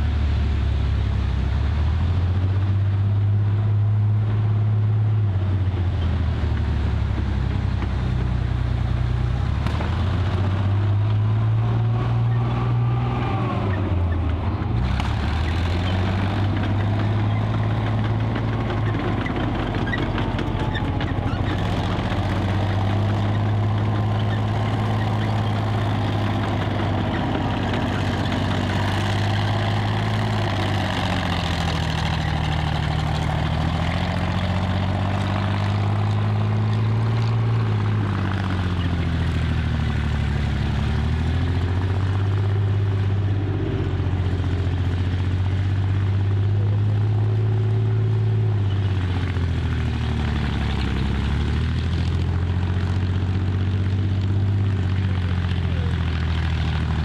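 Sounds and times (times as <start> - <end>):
tank engine revving: 0.0 - 57.0.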